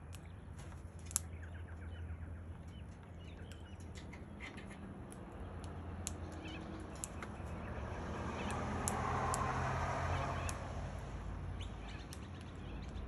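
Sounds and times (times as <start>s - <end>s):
bird cracking seeds with beak: 8.4s - 9.6s.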